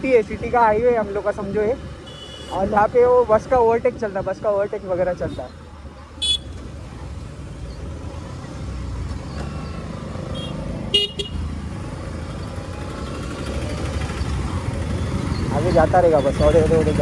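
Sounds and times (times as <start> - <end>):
road rumble: 0.0 - 17.0
motorcycle engine running: 11.0 - 15.8.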